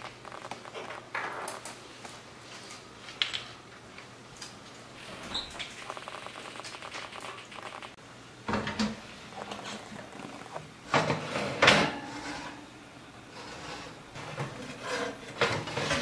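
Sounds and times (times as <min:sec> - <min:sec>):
metal oven rack clattering: 0:10.9 - 0:12.6, 0:13.4 - 0:16.0.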